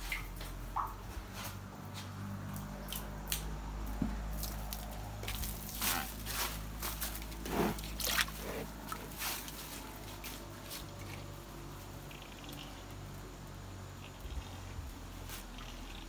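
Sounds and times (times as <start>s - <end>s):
animal slurping from a bucket: 4.3s - 13.2s.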